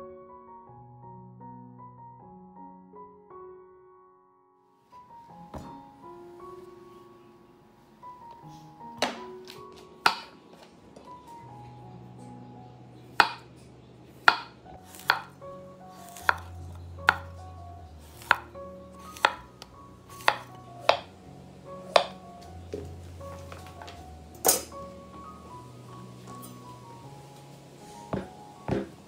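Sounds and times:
knife chopping on wooden board: 0:10.1 - 0:10.4, 0:13.2 - 0:13.4, 0:14.2 - 0:15.3, 0:16.0 - 0:17.4, 0:18.1 - 0:18.4, 0:19.0 - 0:21.1, 0:21.9 - 0:22.2.

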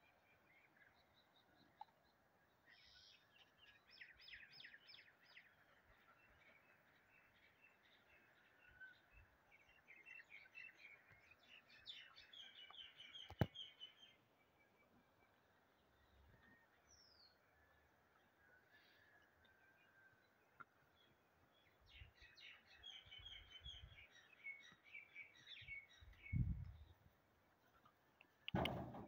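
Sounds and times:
small birds chirping: 0:00.0 - 0:17.5, 0:20.2 - 0:28.6
sharp click: 0:28.4 - 0:28.9.

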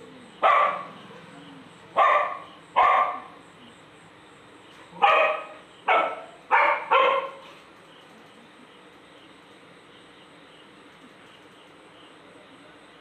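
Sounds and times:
small dog barking: 0:00.4 - 0:01.0, 0:01.9 - 0:03.4, 0:04.9 - 0:07.5.

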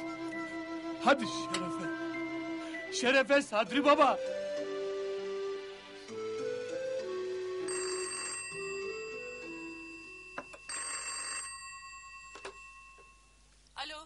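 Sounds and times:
slow sad music: 0:00.0 - 0:10.4
telephone bell ringing: 0:07.7 - 0:13.4.

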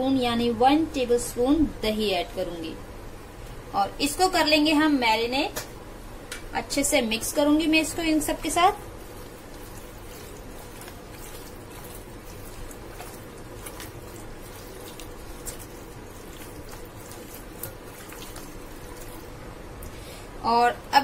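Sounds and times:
wet squelching of chicken mixing: 0:07.8 - 0:20.0.

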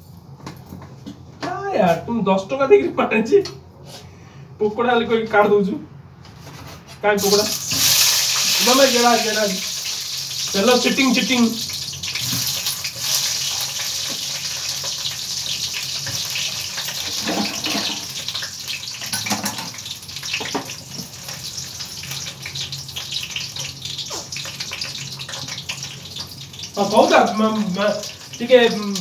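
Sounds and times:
water running from a tap: 0:07.2 - 0:29.0
kitchen utensils clattering: 0:16.1 - 0:18.4, 0:19.0 - 0:19.8.

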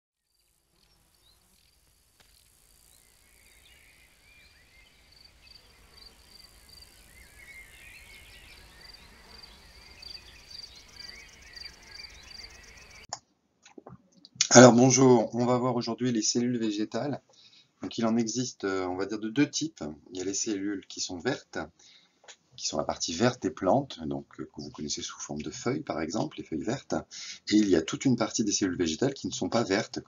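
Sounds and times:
crickets chirping: 0:00.3 - 0:13.0
short chirping calls: 0:02.9 - 0:13.1.

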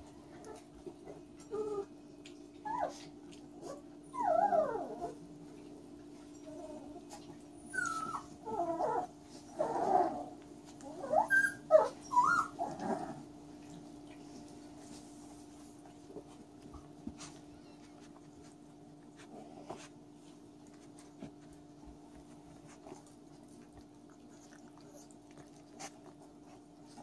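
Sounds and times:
puppies whining and yelping: 0:00.4 - 0:05.3, 0:06.2 - 0:13.3.

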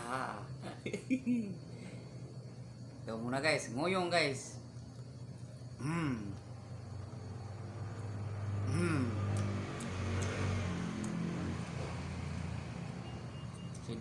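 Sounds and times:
low electrical hum: 0:00.0 - 0:14.0
short hummed vocal sound: 0:05.7 - 0:06.8, 0:08.4 - 0:12.0
motor vehicle passing by: 0:06.9 - 0:14.0.

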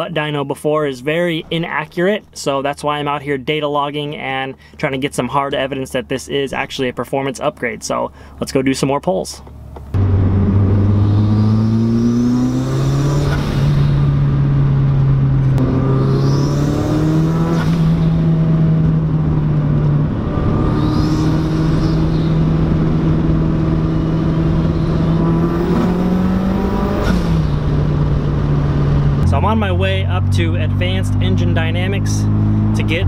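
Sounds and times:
turbo car engine revving: 0:09.6 - 0:33.0.

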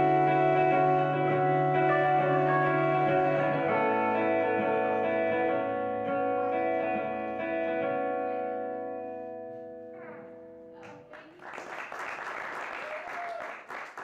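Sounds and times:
electric guitar chord ringing: 0:00.0 - 0:10.8.

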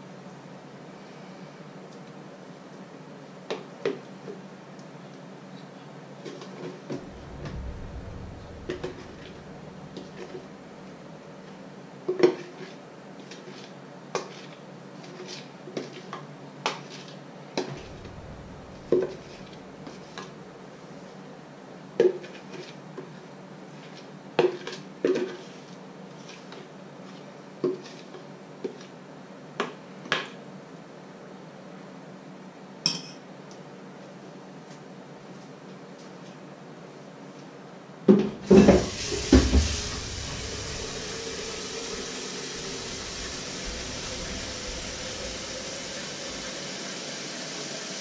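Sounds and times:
faint steady hum: 0:06.9 - 0:11.9, 0:17.6 - 0:21.4, 0:38.2 - 0:48.0
batter pouring: 0:38.5 - 0:48.0.

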